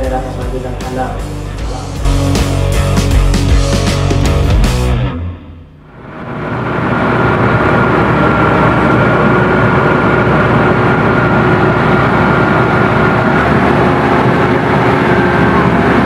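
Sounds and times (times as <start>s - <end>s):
high whine: 0.0s - 16.0s
bulldozer diesel engine running: 5.7s - 16.0s.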